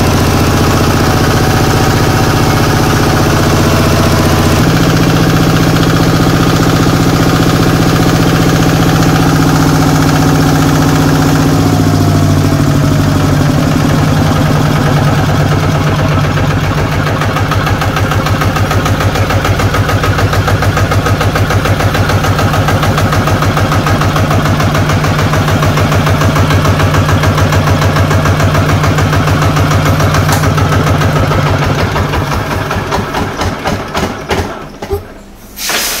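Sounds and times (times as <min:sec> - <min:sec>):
diesel engine idling: 0:00.0 - 0:36.0.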